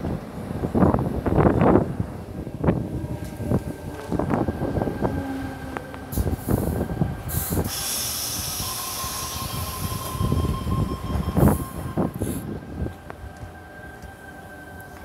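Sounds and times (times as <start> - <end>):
electric train rumble: 0.0 - 15.0
train brakes squealing: 5.0 - 15.0
high hiss: 6.1 - 12.6.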